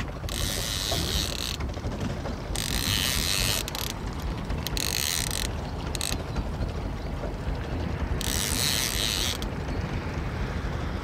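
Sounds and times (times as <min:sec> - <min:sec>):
fishing reel ratcheting: 0:00.0 - 0:01.8, 0:02.5 - 0:06.3, 0:08.2 - 0:09.5
outboard motor rumble: 0:00.0 - 0:11.0.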